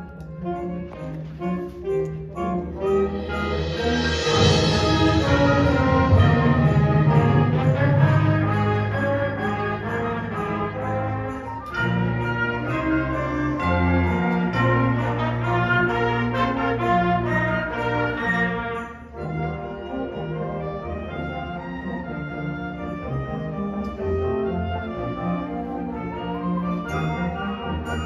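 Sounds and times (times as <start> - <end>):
concert band playing chords: 2.7 - 8.7.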